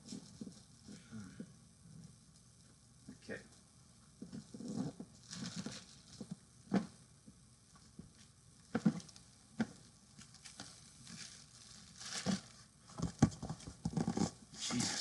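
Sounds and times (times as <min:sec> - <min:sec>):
cardboard box knocks and bumps: 0:12.3 - 0:14.3.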